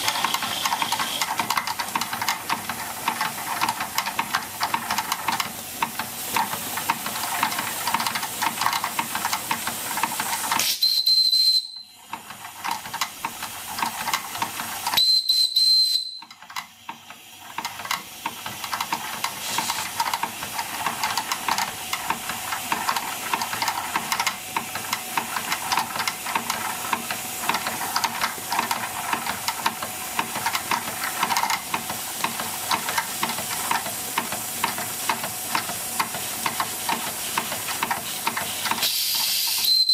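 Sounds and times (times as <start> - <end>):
high steam whistle blasts: 0.0 - 1.2, 10.6 - 12.0, 15.0 - 16.3, 38.8 - 39.9
toy steam engine hissing beats: 0.0 - 39.9.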